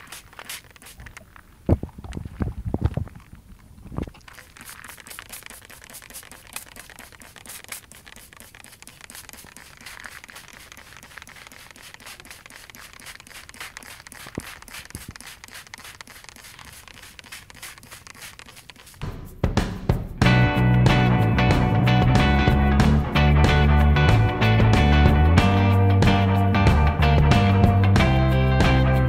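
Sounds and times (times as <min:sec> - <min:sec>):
spray bottle hissing squirts: 0:00.0 - 0:01.2, 0:04.2 - 0:19.1.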